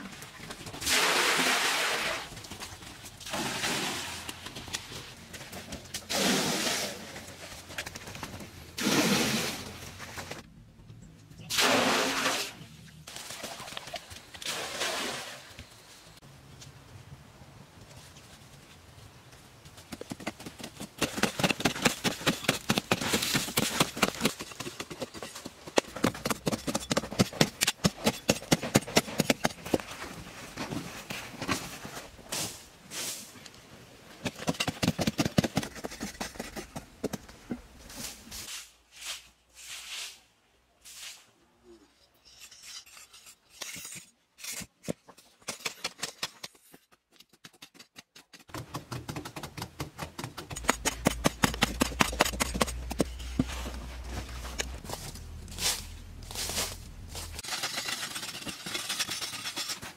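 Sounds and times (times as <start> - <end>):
hand tools digging sandy soil: 21.0 - 33.4, 50.3 - 59.9.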